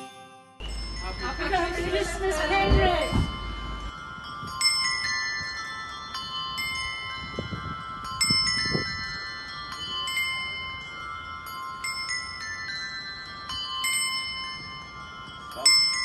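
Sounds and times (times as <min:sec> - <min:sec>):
bell-like struck notes music: 0:00.0 - 0:16.0.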